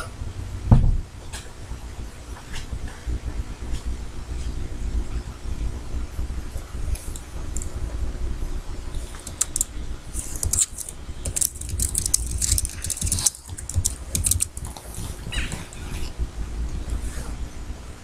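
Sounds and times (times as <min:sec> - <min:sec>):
low hum: 0:00.0 - 0:18.0
keyboard keys clicking: 0:09.1 - 0:14.8.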